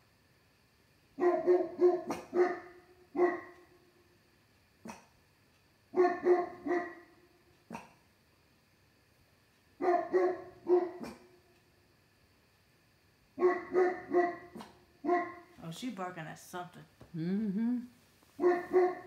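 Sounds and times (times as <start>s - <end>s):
dog barking: 1.2s - 3.6s, 4.8s - 5.1s, 6.0s - 7.1s, 7.7s - 8.0s, 9.8s - 11.3s, 13.4s - 15.5s, 18.4s - 19.0s.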